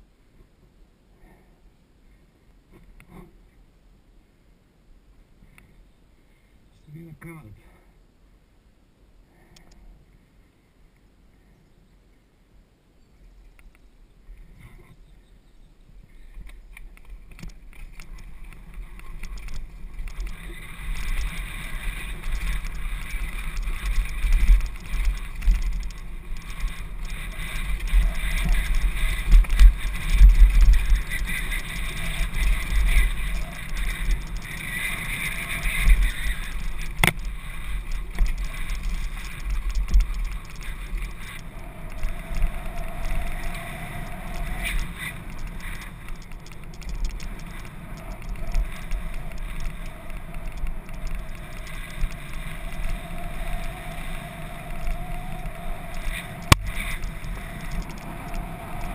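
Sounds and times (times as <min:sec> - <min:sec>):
bike rattling: 0:16.4 - 0:58.9
wind buffeting microphone: 0:16.4 - 0:58.9
bike tyres rumbling over dirt: 0:16.5 - 0:58.9.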